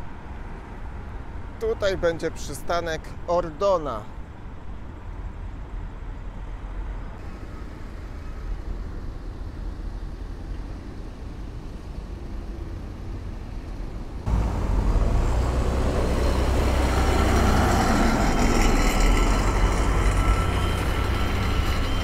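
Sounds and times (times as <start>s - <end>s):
road traffic passing: 0.0s - 22.0s
heavy truck engines close by: 7.2s - 22.0s.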